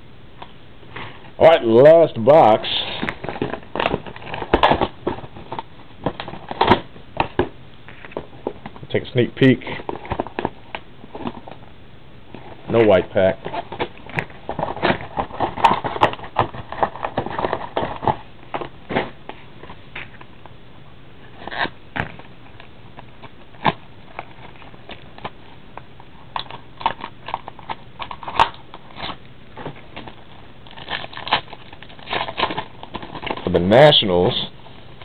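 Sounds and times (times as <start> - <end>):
plastic wrapper crackling: 26.2 - 34.4.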